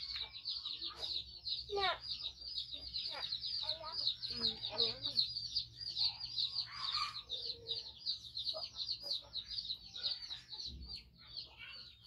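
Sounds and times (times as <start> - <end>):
rapid high-pitched chirping: 0.0 - 12.0.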